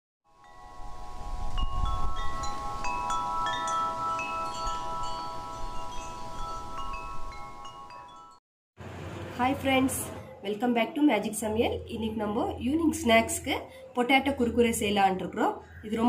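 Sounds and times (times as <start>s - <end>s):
chimes ringing: 0.3s - 8.4s.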